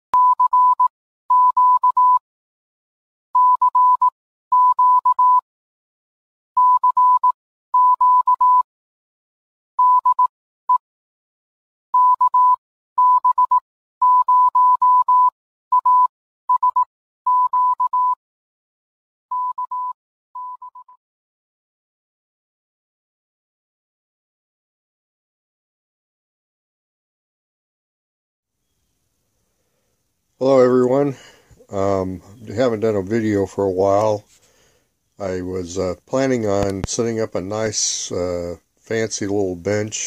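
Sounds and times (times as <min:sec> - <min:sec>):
morse code beeps: 0:00.2 - 0:02.2, 0:03.4 - 0:05.4, 0:06.6 - 0:08.6, 0:09.8 - 0:10.3, 0:12.0 - 0:18.2, 0:19.3 - 0:21.0.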